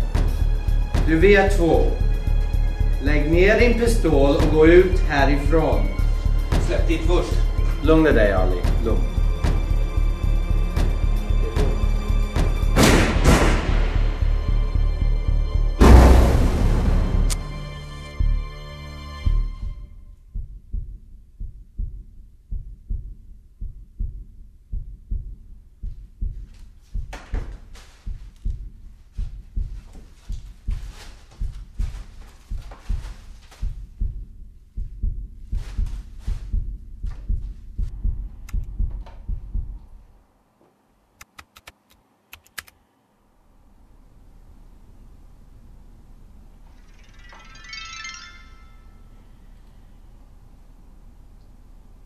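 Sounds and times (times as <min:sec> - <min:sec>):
muffled heartbeat thumps: 0:04.1 - 0:16.1, 0:19.3 - 0:40.2
high ringing tone: 0:46.6 - 0:50.2.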